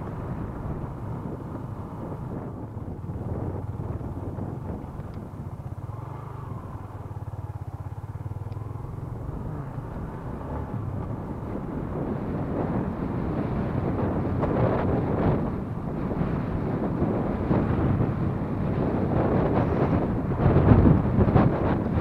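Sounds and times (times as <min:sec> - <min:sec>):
motorcycle engine running: 0:00.0 - 0:22.0
wind on microphone: 0:00.0 - 0:22.0.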